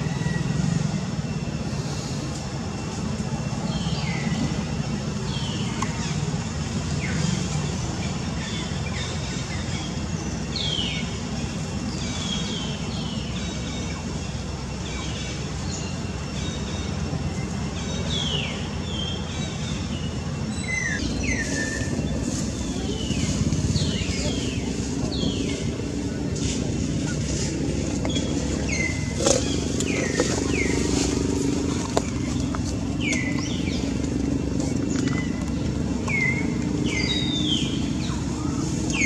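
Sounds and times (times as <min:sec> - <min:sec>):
low rumble: 0:19.4 - 0:39.0.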